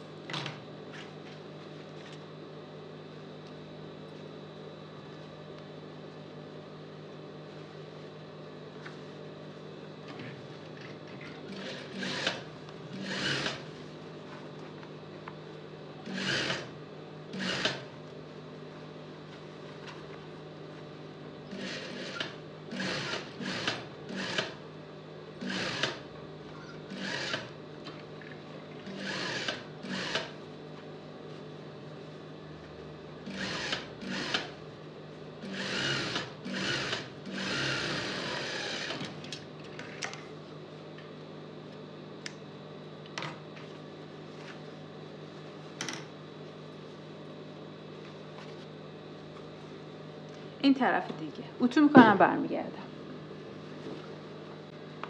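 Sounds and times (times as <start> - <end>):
sewing machine stitching: 11.5 - 13.6, 16.1 - 16.7, 17.4 - 17.8, 25.4 - 26.0, 35.5 - 39.1.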